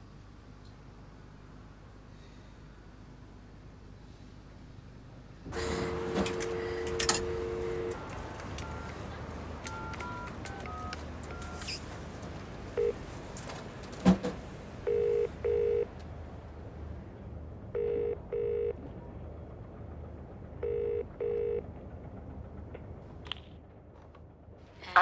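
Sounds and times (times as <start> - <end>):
payphone keypad tones: 6.2 - 9.0, 9.6 - 11.8, 12.8 - 13.0, 14.9 - 15.9.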